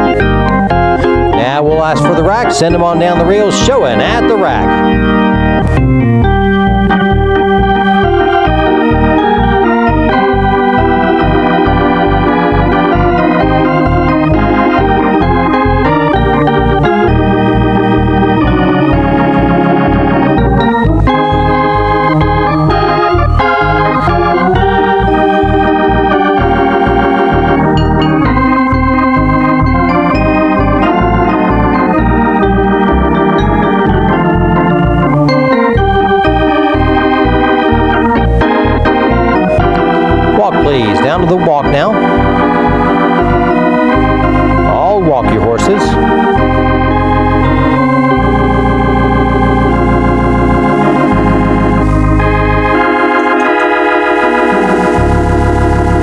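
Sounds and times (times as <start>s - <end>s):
organ music with bass beat: 0.0s - 56.0s.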